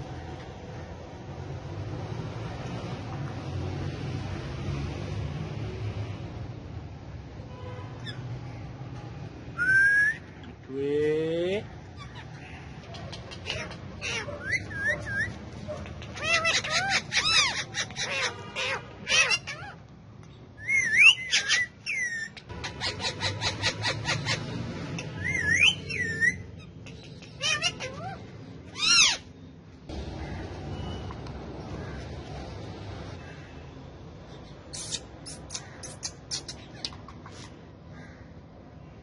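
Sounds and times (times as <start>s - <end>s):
parakeets chattering: 11.8s - 19.8s, 20.8s - 31.0s, 34.5s - 38.2s
parakeets whistling: 13.4s - 15.4s, 20.6s - 29.3s.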